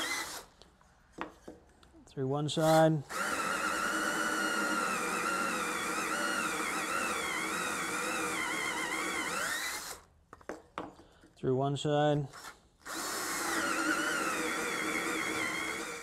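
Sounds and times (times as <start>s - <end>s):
cordless drill boring into wood: 0.0s - 0.5s, 2.6s - 10.1s, 12.3s - 16.0s.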